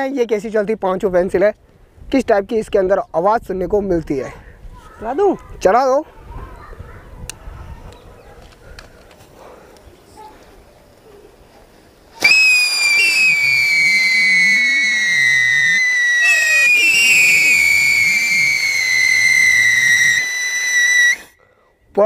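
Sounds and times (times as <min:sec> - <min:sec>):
hiss of sparks: 0:12.2 - 0:21.3
firework whistle sliding down: 0:12.2 - 0:21.4.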